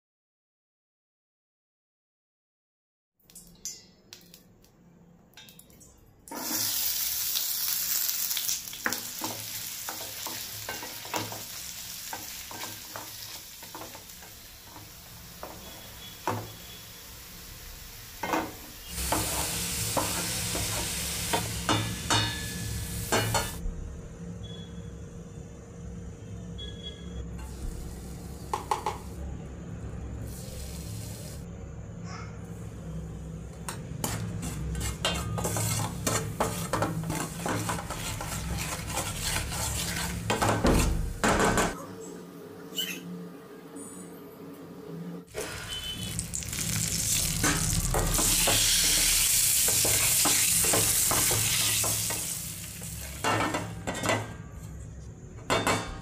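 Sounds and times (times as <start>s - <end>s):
spices frying in oil: 6.3s - 23.6s, 34.0s - 41.3s, 45.3s - 53.8s
loud steady sizzle: 6.3s - 23.7s, 29.9s - 31.5s, 45.3s - 53.8s
spoon scraping a pan: 33.7s - 41.7s.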